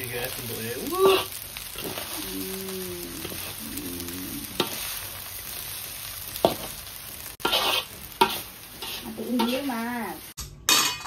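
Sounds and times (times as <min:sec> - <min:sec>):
rice sizzling in a wok: 0:00.0 - 0:11.0
metal spatula stirring: 0:04.5 - 0:05.6, 0:06.3 - 0:09.8.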